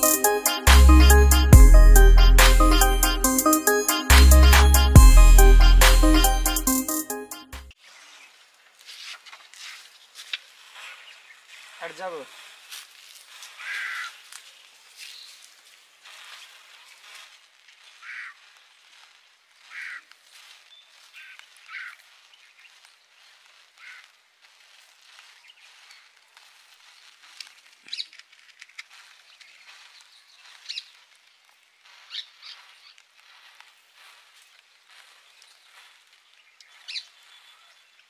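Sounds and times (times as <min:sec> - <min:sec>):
sharp crackles: 0:11.8 - 0:37.1
birds chirping: 0:36.4 - 0:38.0.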